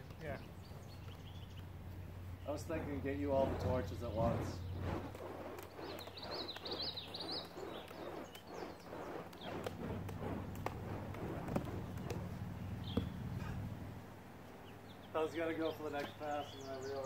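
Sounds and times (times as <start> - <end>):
bird chirping: 0.0 - 9.8, 10.4 - 13.4, 14.5 - 17.0.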